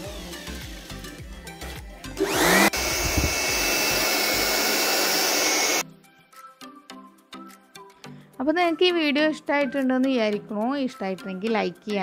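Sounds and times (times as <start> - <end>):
electric air blower whine: 2.2 - 5.8.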